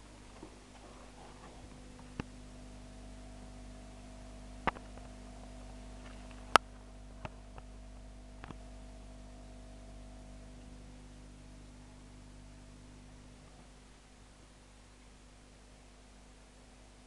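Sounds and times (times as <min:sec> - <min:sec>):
aquarium equipment humming: 0:00.0 - 0:17.0
sharp clicks: 0:04.6 - 0:05.2.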